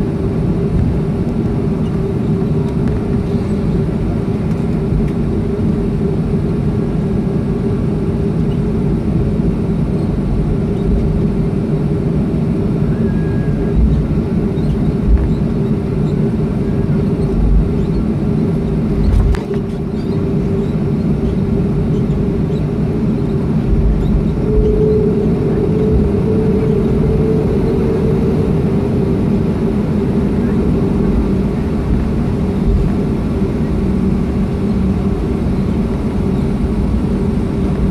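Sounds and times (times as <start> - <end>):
jet engines idling with whine: 0.0 - 37.9
low thumps from rolling aircraft: 0.0 - 37.9.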